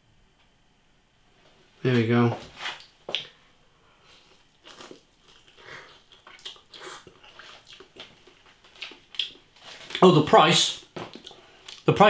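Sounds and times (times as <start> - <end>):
slurping and chewing noodles: 4.3 - 10.0.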